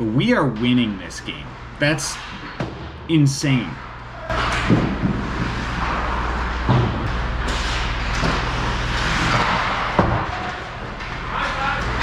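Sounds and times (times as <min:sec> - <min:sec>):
low arena hum: 0:00.0 - 0:12.0
skates scraping ice: 0:04.3 - 0:06.7, 0:07.4 - 0:12.0
hockey sticks and puck knocking: 0:04.3 - 0:12.0.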